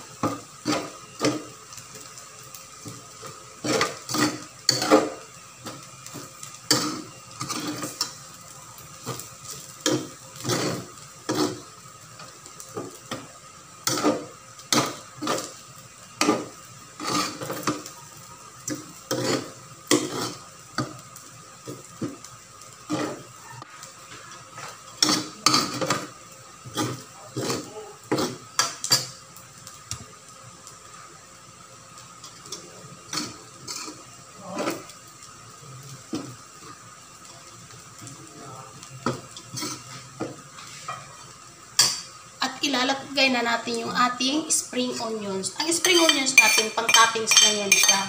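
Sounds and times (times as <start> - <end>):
metal utensil scraping a wok: 3.6 - 5.2, 6.7 - 8.2, 9.0 - 11.7, 13.8 - 15.5, 16.2 - 17.8, 18.7 - 20.5, 22.9 - 23.3, 26.6 - 29.1.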